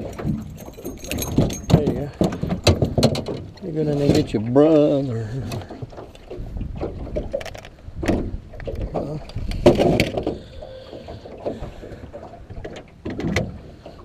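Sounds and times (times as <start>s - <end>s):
fishing gear knocking and clattering: 0.0s - 4.4s, 5.5s - 10.5s.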